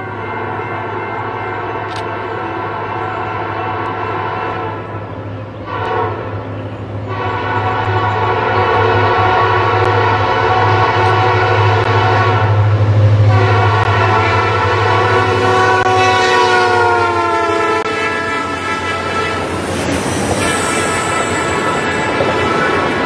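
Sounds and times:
locomotive air horn blasts: 0.0 - 23.0
locomotive engine drone: 0.0 - 23.0
train wheels rumbling and clattering: 5.3 - 23.0.

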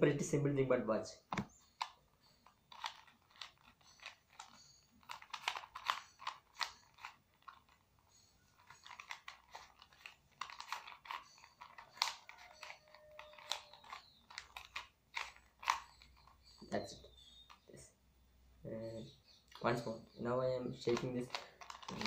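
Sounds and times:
plastic cube clicking and clacking: 1.4 - 17.7, 20.8 - 22.0.

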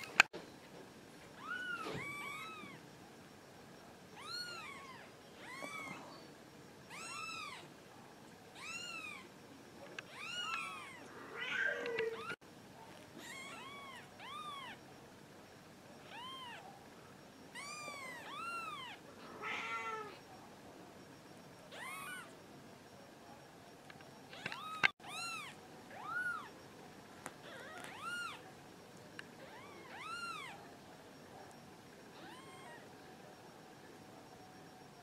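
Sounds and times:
kittens mewing: 1.4 - 2.8, 4.2 - 6.1, 6.9 - 7.7, 10.0 - 12.4, 13.2 - 14.8, 16.0 - 16.6, 17.5 - 20.2, 21.7 - 22.3, 27.4 - 28.4, 29.4 - 30.6, 32.1 - 32.9.

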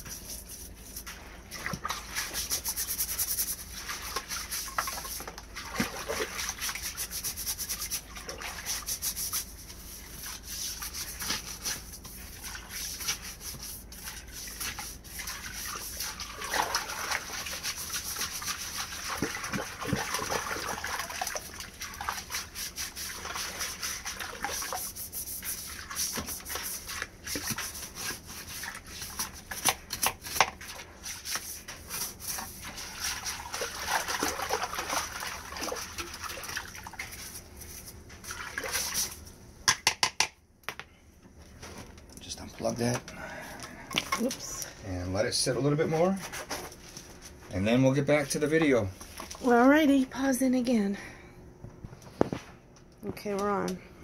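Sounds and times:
brush scraping on metal: 0.0 - 5.4, 6.4 - 16.3, 22.2 - 33.5
brush scrubbing in water: 0.0 - 39.3
small water splashes: 3.8 - 9.4, 10.1 - 24.9, 32.6 - 37.4, 38.2 - 39.2.

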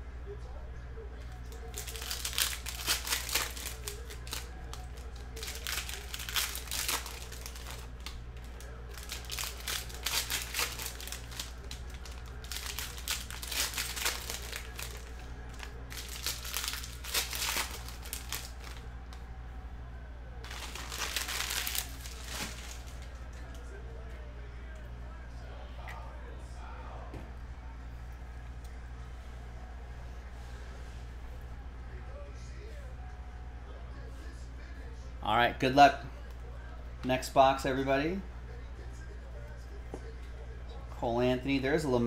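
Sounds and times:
low electrical hum: 0.0 - 42.0
plastic wrappers crinkling: 1.5 - 19.2, 20.4 - 23.6.

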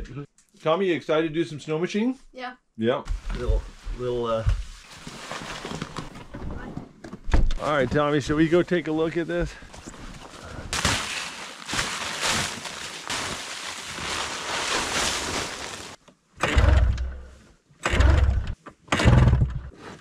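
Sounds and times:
plastic tarp rustling: 3.2 - 6.3, 7.6 - 16.0.

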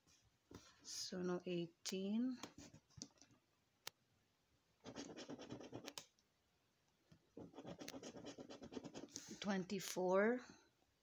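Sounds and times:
coin scratching a scratchcard: 4.8 - 6.0, 7.4 - 9.1.

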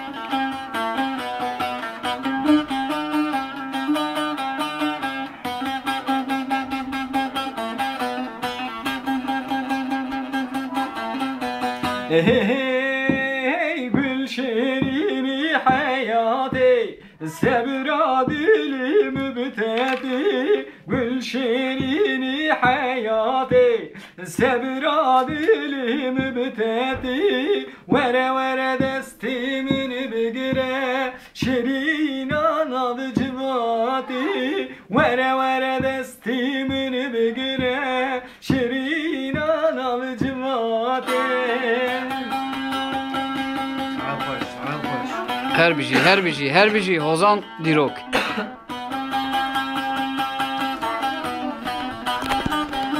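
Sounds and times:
long-necked lute strummed: 0.0 - 52.9
person singing folk melody: 0.0 - 52.9.

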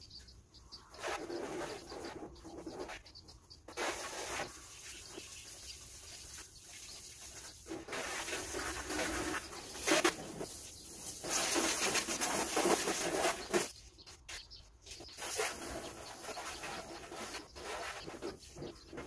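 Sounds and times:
hose water spraying on car: 3.8 - 6.0, 7.0 - 13.7.

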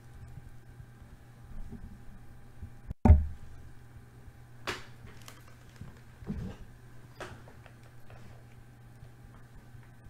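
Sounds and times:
heavy dull thump: 3.0 - 3.4.

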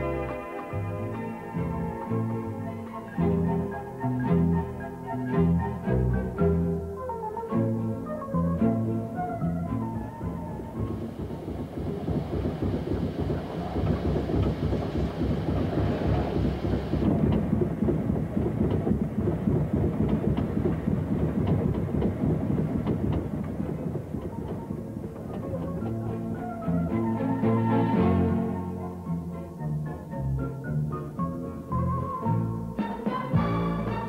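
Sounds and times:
steam locomotive rumbling: 0.0 - 34.0
wheels clattering: 0.0 - 34.0
steam hiss: 10.5 - 22.6.

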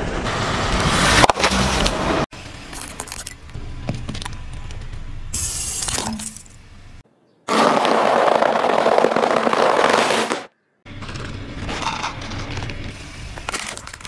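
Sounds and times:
tyre crushing cereal puffs: 7.5 - 10.5.

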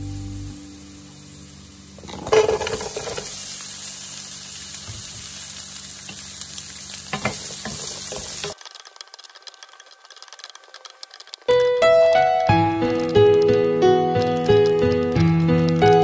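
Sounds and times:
garlic sizzling in oil: 0.0 - 15.9
spatula scraping pan: 2.0 - 3.3
onions dropped into pan clattering: 2.0 - 3.5, 7.0 - 8.6.

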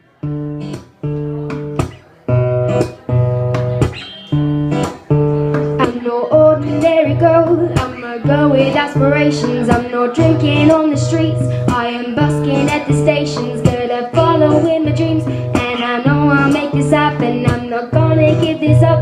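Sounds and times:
acoustic guitar strumming chords: 0.0 - 19.0
woman singing: 5.7 - 19.0.

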